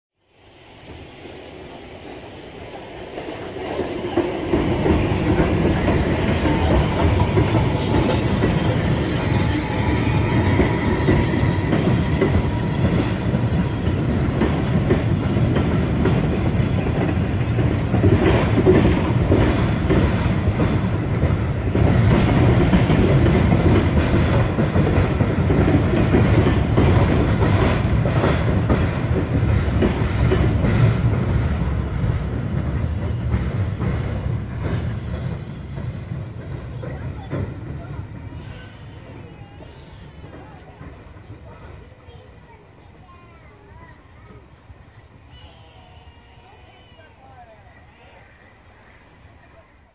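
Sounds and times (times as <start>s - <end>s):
train wheels rumbling on rails: 0.2s - 49.9s
wheels clacking over rail joints: 2.2s - 47.0s.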